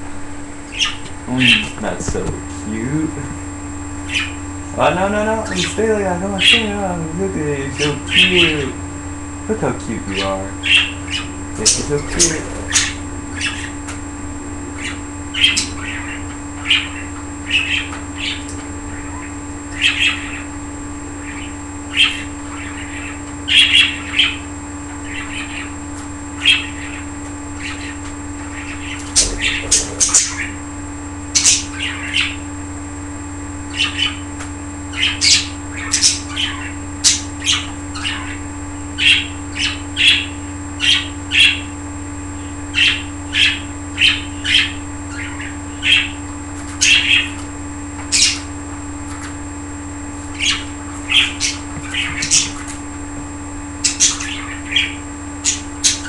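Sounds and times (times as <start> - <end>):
budgerigars chirping: 0.7 - 1.8, 4.0 - 4.4, 5.4 - 6.7, 7.8 - 8.7, 10.1 - 13.9, 14.8 - 20.5, 21.2 - 25.8, 26.4 - 30.6, 31.3 - 32.5, 33.7 - 34.3, 34.9 - 41.8, 42.4 - 47.4, 48.1 - 49.2, 50.3 - 52.8, 53.8 - 56.0
squawky bird calls: 0.7 - 1.8, 4.0 - 4.5, 5.4 - 6.8, 7.8 - 8.8, 10.1 - 14.0, 14.7 - 20.6, 21.2 - 30.7, 31.3 - 32.5, 33.7 - 34.3, 34.9 - 41.8, 42.4 - 47.4, 48.0 - 48.6, 50.3 - 52.8, 53.8 - 56.0.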